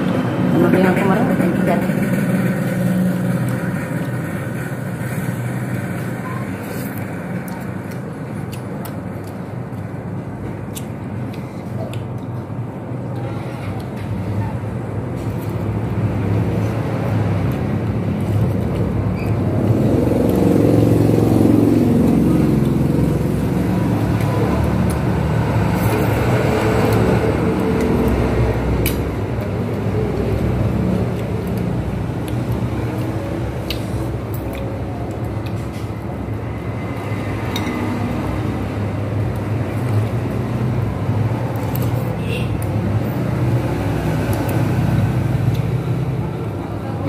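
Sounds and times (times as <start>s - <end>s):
road traffic rumbling past: 0.0s - 47.0s
cutlery clinking against bowls: 37.5s - 37.8s.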